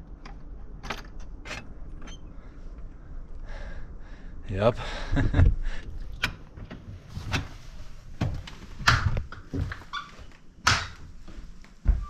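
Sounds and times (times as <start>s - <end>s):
footsteps on wooden floor: 11.1s - 12.0s.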